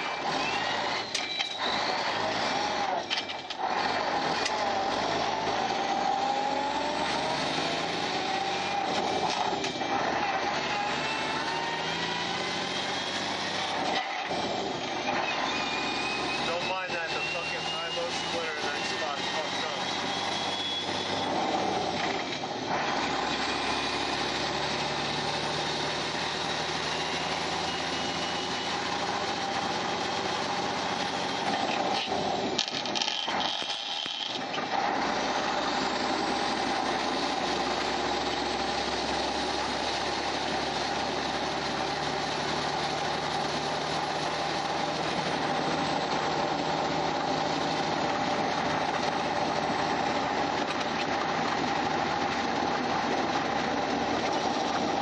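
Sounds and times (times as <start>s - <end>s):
diesel truck engine pulling: 0.0s - 55.0s.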